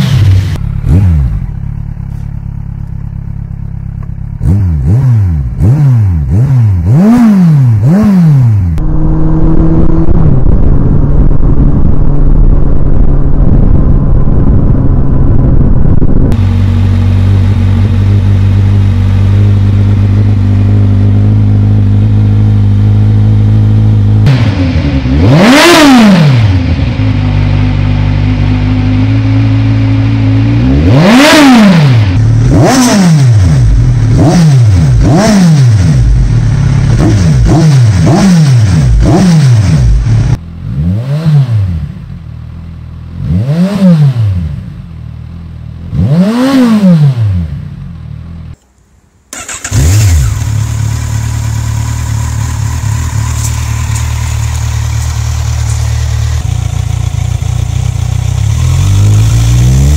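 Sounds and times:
motorcycle engine revving: 0.0 - 48.6, 49.3 - 59.9.

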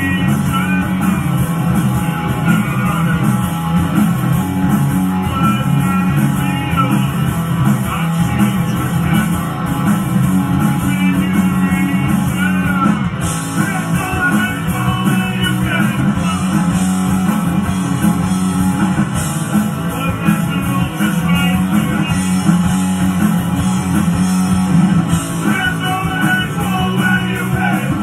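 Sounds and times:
bass guitar: 0.0 - 28.0
drums: 0.0 - 28.0
electric guitar: 0.0 - 28.0.

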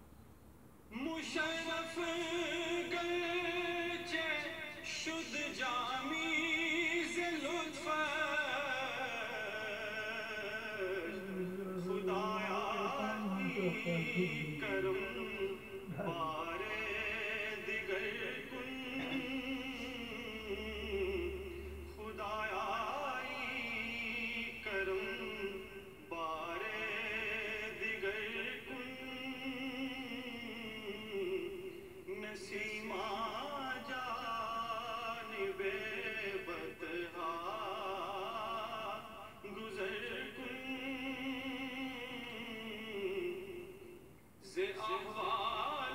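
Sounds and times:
person singing long wavering notes: 11.0 - 16.5.

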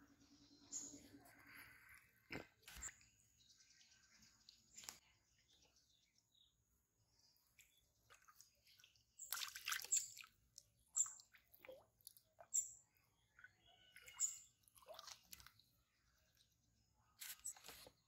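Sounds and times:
wading through shallow water: 7.3 - 16.1
fish splashing in water: 9.2 - 10.4.

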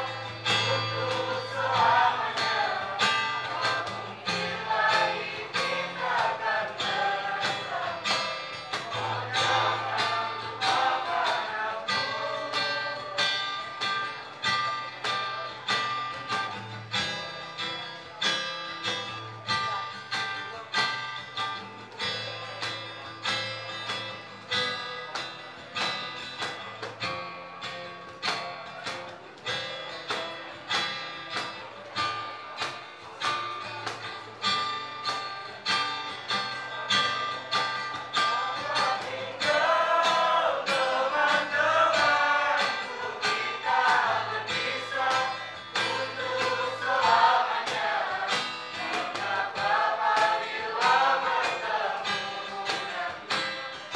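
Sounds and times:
young voices singing together: 0.0 - 16.8, 36.8 - 53.9
acoustic guitar strumming: 0.0 - 53.9.

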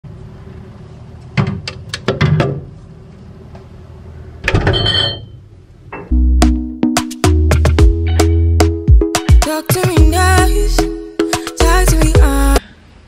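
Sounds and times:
music with heavy bass: 6.1 - 12.6.

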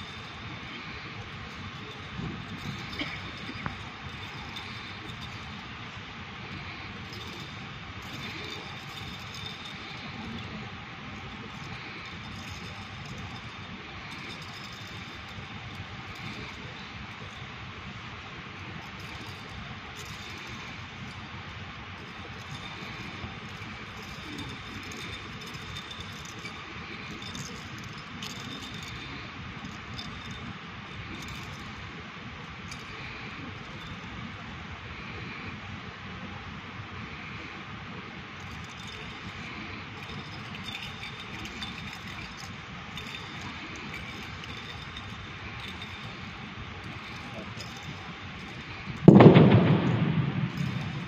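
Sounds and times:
low rumble and hiss: 0.0 - 51.0.

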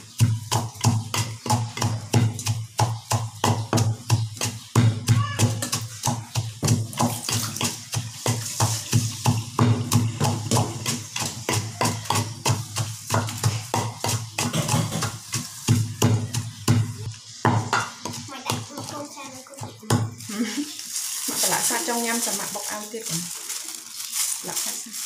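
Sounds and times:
pestle pounding in wooden mortar: 0.0 - 20.3.

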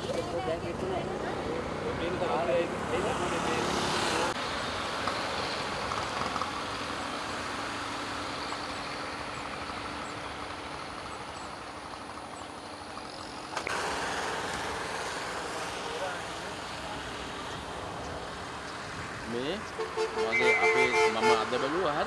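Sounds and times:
vehicle engine idling: 0.0 - 22.0.

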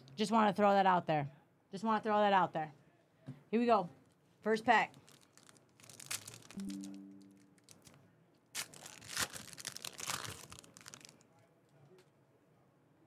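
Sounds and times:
wrapper tearing and crinkling: 4.9 - 6.8, 7.6 - 11.2.

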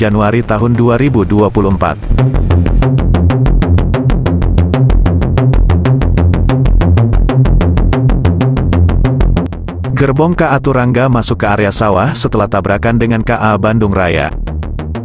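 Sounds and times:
electronic dance music: 0.0 - 3.0, 5.6 - 14.4.

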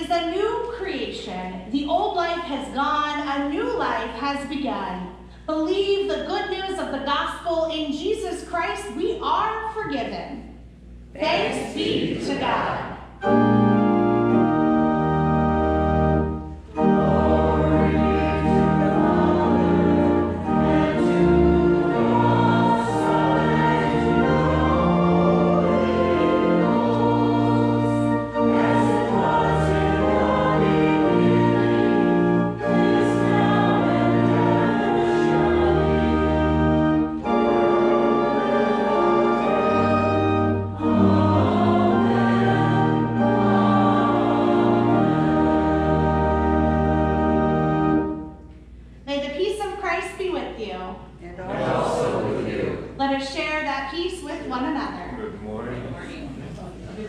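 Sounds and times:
organ chords: 10.6 - 49.0, 51.5 - 53.1
voices singing a hymn: 11.2 - 48.4, 51.4 - 53.0.

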